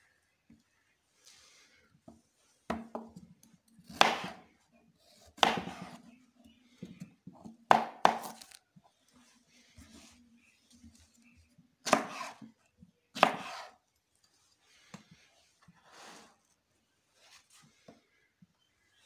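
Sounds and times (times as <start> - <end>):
knife chopping carrot on board: 3.9 - 4.4, 5.4 - 6.0, 7.7 - 8.5, 11.8 - 12.4, 13.2 - 13.7.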